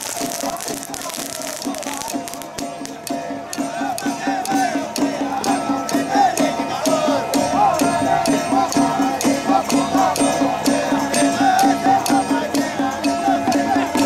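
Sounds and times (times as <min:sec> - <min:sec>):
clacking percussion beat: 0:00.0 - 0:14.0.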